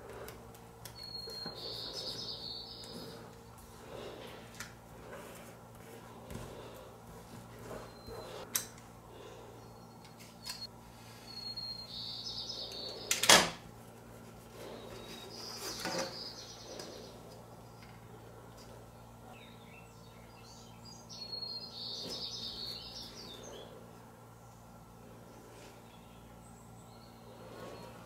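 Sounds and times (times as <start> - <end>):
faint bird chirps: 0.9 - 3.3, 9.6 - 13.1.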